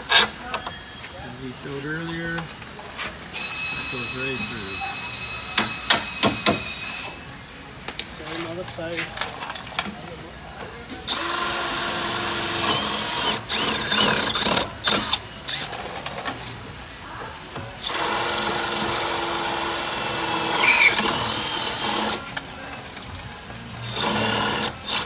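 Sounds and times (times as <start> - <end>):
loud irregular noise: 1.4 - 25.0
cordless drill drilling: 11.1 - 15.7, 17.8 - 22.2.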